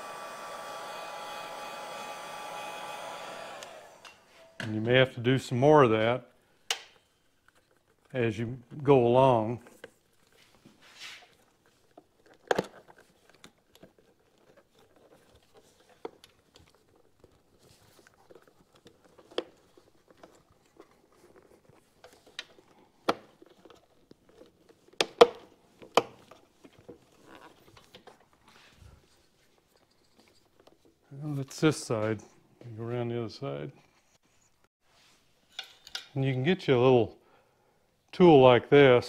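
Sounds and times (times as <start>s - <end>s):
faint rubbing: 10.0s - 11.7s.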